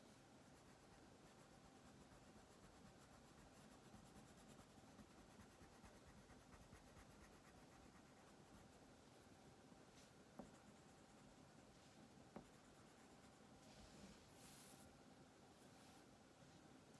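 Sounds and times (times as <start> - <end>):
crayon scratching on paper: 0.6 - 8.8, 12.3 - 13.4.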